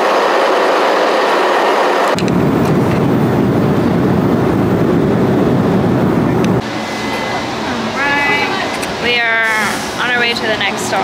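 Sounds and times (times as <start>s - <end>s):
airliner cabin engine roar: 0.0s - 11.0s.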